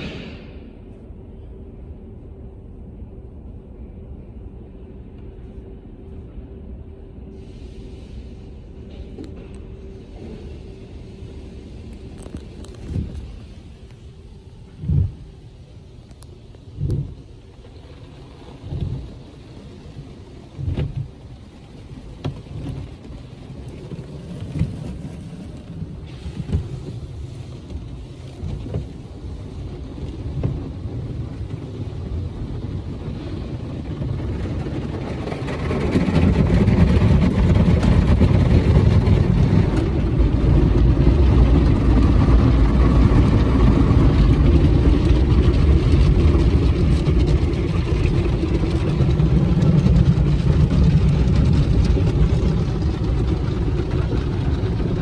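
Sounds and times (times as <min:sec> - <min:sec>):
loud steady rushing noise: 0:00.0 - 0:02.9, 0:09.8 - 0:55.0.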